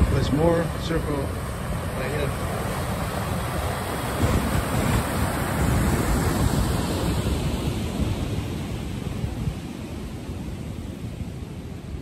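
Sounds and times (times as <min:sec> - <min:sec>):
wave breaking: 0:00.0 - 0:11.4
white water rushing: 0:00.0 - 0:12.0
wind on microphone: 0:00.0 - 0:12.0.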